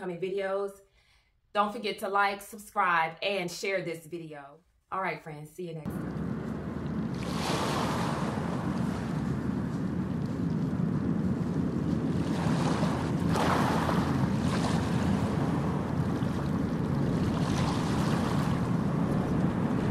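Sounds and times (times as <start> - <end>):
ocean surf washing: 5.9 - 19.9
waves surging in: 5.9 - 19.9.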